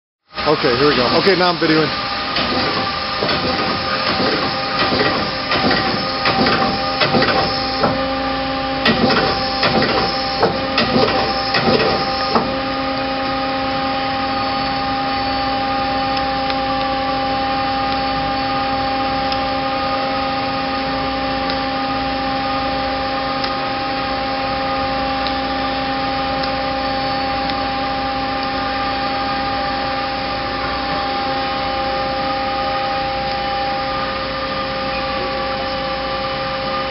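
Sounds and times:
lathe running: 0.3 - 36.9
steady machine hum: 0.3 - 36.9.

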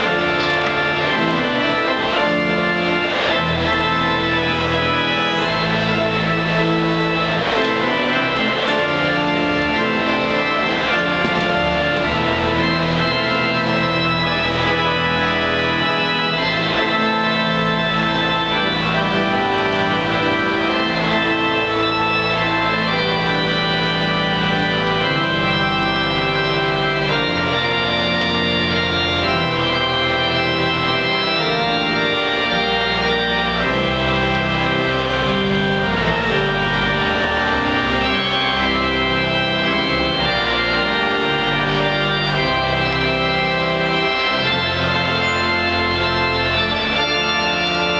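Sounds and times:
low organ pedal bass notes: 0.0 - 47.9
pipe organ chords: 0.0 - 47.9.

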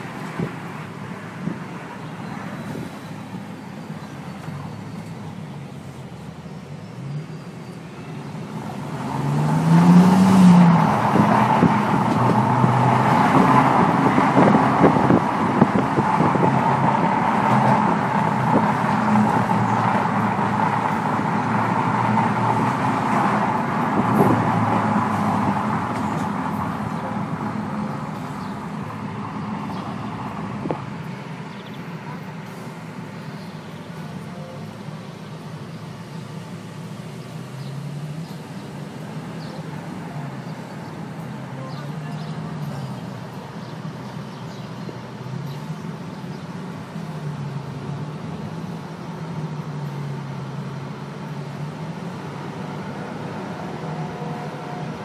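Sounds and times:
car engine revving: 8.4 - 31.9.

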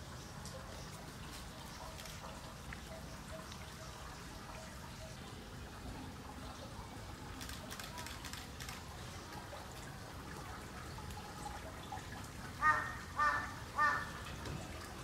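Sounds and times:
faint background noise: 0.0 - 15.0
crow cawing: 12.6 - 14.2.

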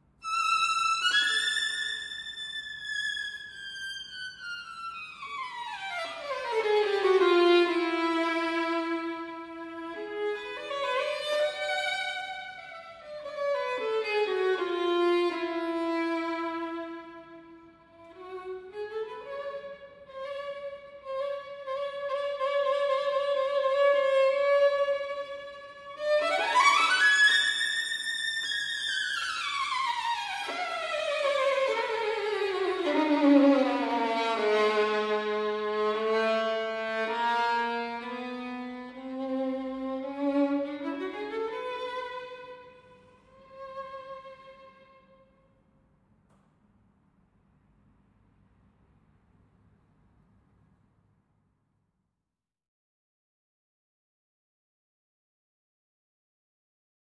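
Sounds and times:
solo violin slow melody: 0.0 - 45.5.

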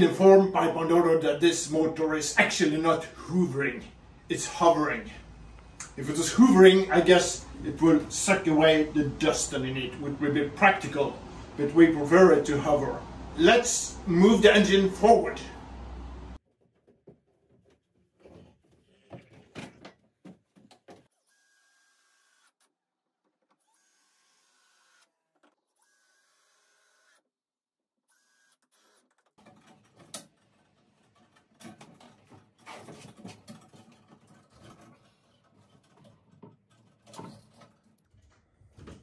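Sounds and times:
cordless drill driving screws: 21.3 - 22.7, 23.6 - 27.2, 28.1 - 29.3
timber blocks clattering: 29.2 - 38.3.

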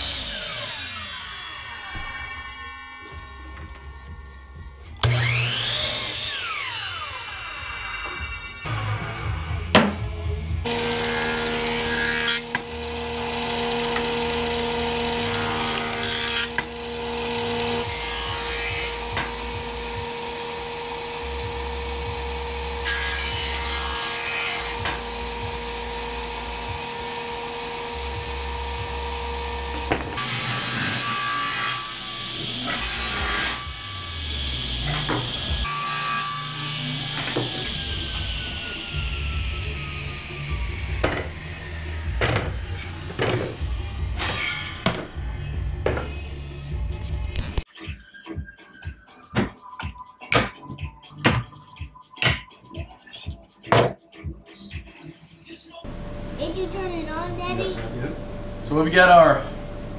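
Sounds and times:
power saw cutting wood: 0.0 - 3.7, 5.0 - 10.0, 10.6 - 45.2
background music: 0.1 - 12.4, 36.6 - 59.9.

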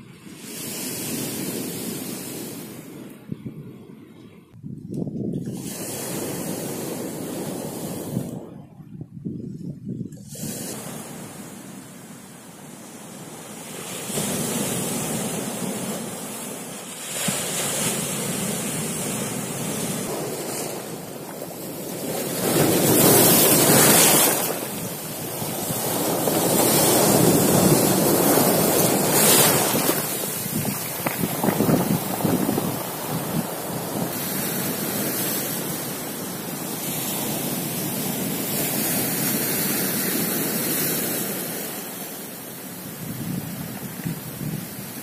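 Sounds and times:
surf breaking on pebble shore: 10.2 - 45.0.

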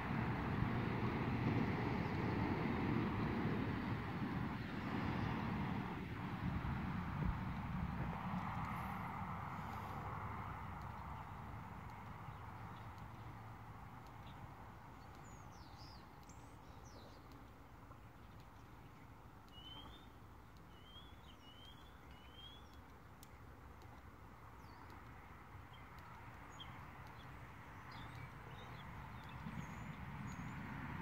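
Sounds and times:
small birds chirping: 9.6 - 30.7.

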